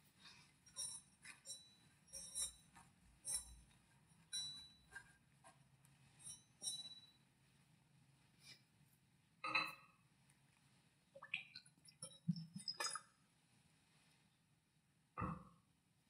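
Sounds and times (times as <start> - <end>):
metal vessels clinking lightly: 0.6 - 5.2, 6.2 - 7.2, 11.9 - 13.2.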